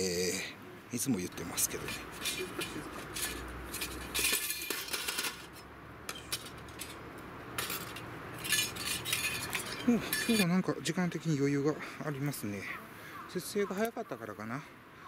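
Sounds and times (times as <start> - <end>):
metal cookware clinking: 1.7 - 7.0, 7.6 - 10.5.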